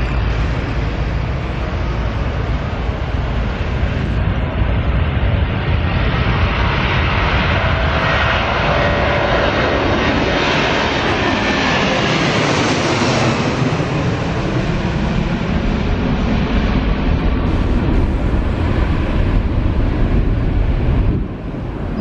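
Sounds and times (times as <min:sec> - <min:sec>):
jet engines roaring: 0:00.0 - 0:22.0.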